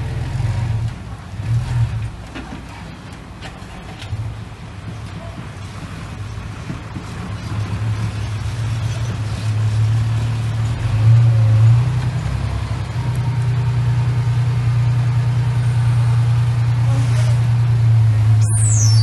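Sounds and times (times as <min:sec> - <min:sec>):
diesel truck engine running: 0:00.0 - 0:19.0.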